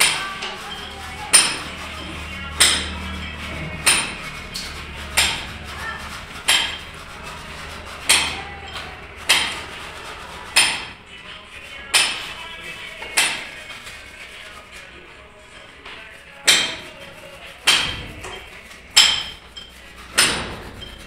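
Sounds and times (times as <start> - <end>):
hammer blows ringing: 0.0 - 11.0, 17.6 - 21.0.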